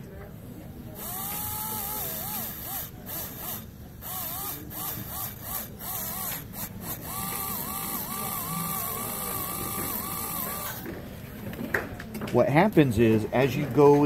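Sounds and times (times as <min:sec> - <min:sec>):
dental drill whining and grinding: 0:01.0 - 0:10.9.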